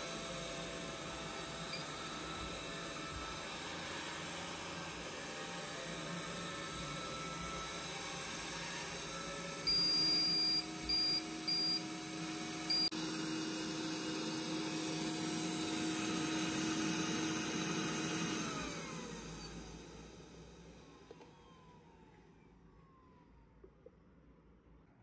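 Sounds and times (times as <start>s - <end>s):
suction fan whirring: 0.0s - 20.5s
electronic beeps: 9.7s - 11.8s.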